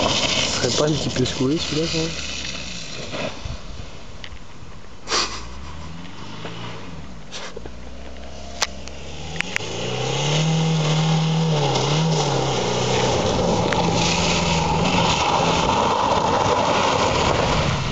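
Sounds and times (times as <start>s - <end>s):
car engine approaching: 0.0s - 17.9s
tyres on dirt track: 0.0s - 17.9s.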